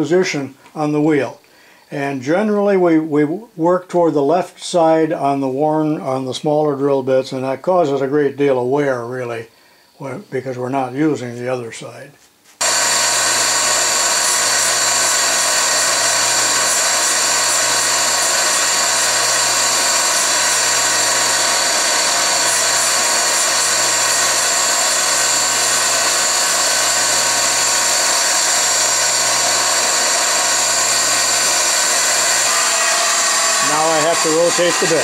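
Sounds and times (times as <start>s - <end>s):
drill grinder whining: 12.6s - 35.0s.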